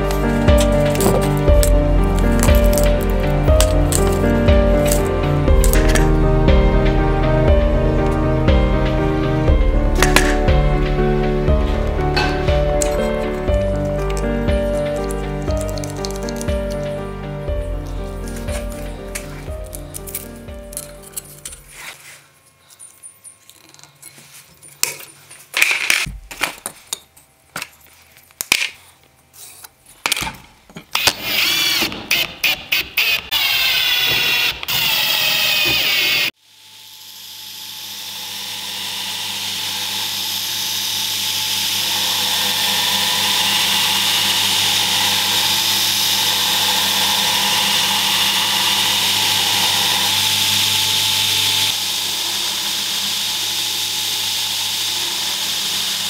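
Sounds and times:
belt grinder motor running: 0:10.0 - 0:21.4, 0:31.0 - 0:56.0.

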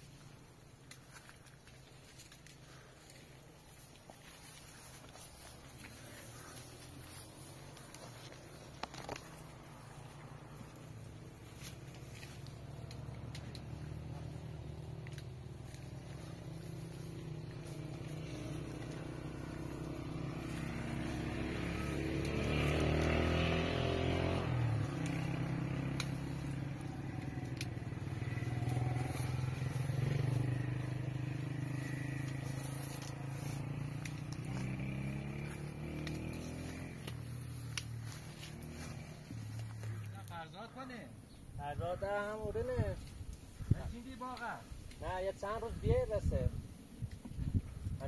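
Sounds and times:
engine running: 0:00.0 - 0:40.8.

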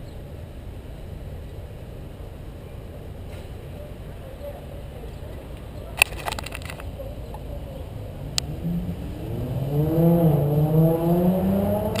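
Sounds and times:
vehicle engine revving: 0:08.0 - 0:12.0.

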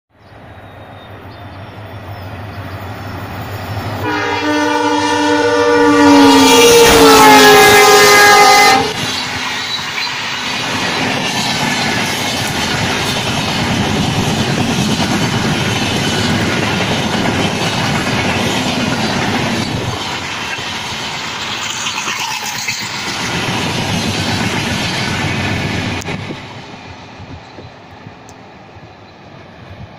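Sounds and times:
train wheels on rails: 0:00.2 - 0:29.9
locomotive air horn: 0:04.0 - 0:09.0.

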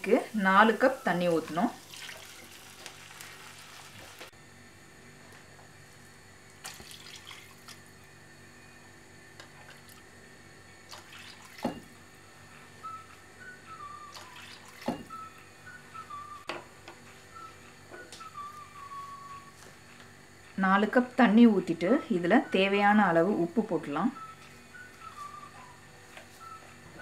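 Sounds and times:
water heating in a pan: 0:00.0 - 0:04.3
faint wavering whistle: 0:12.2 - 0:19.7, 0:24.0 - 0:27.0.

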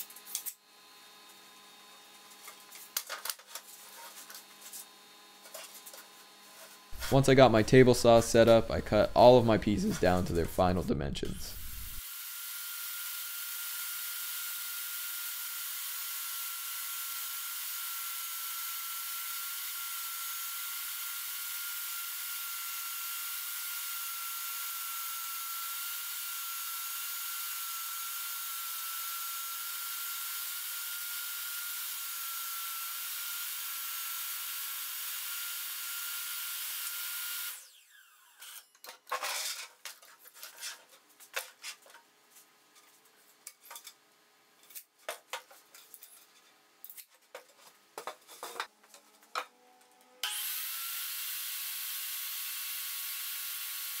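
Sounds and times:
table saw whining: 0:11.5 - 0:39.7, 0:48.6 - 0:54.0.

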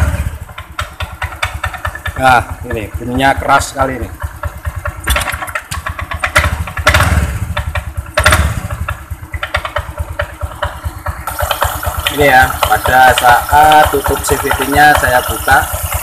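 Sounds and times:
scooter engine idling: 0:00.0 - 0:16.0
rapid clattering knock: 0:00.5 - 0:02.8, 0:04.2 - 0:13.3.

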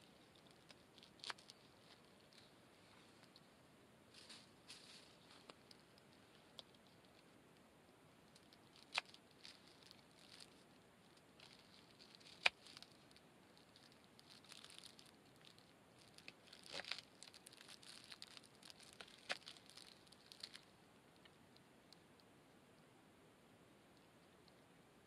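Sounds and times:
plastic bag crinkling: 0:00.0 - 0:03.4, 0:08.3 - 0:20.7.

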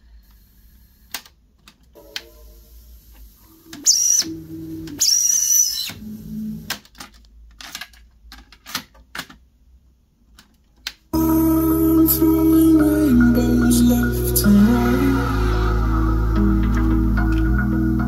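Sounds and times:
pitched tape sound: 0:02.0 - 0:06.7, 0:11.2 - 0:18.0.

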